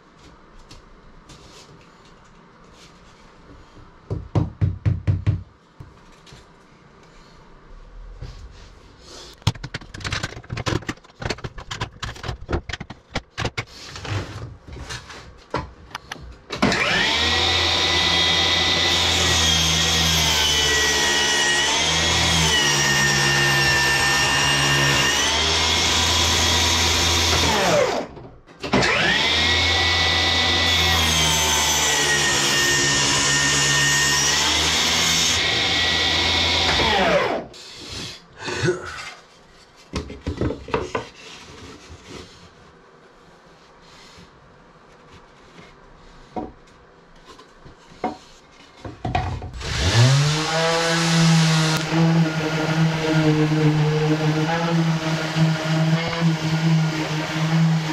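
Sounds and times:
knocks and clicks of handled wood: 9.3s - 13.7s, 46.3s - 49.6s.

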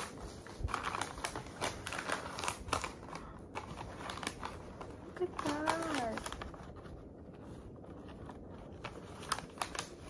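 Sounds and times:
wrapping paper crinkling: 0.0s - 10.0s.

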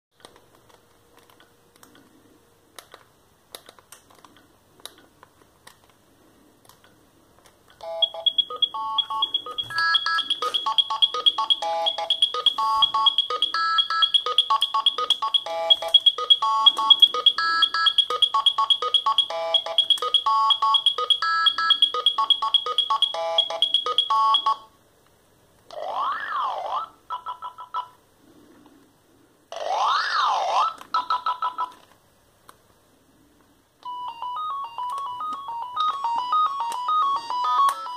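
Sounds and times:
phone ringtone beeping melody: 7.8s - 24.7s, 33.8s - 37.9s.

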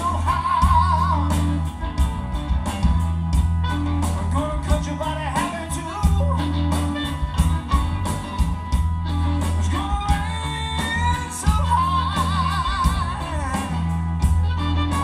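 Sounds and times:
man singing with vibrato: 0.0s - 1.8s, 4.1s - 7.2s, 9.4s - 14.1s
electric blues band playing: 0.0s - 15.0s.

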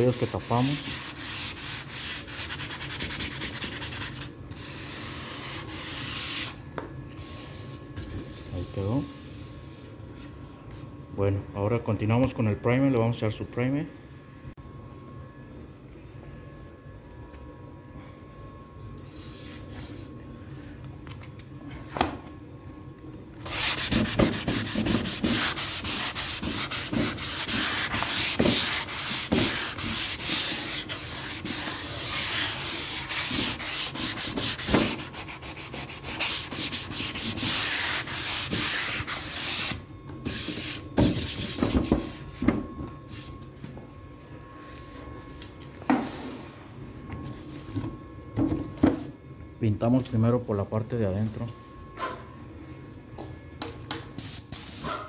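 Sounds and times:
sanding block scraping wood: 0.0s - 6.5s, 23.5s - 41.7s.

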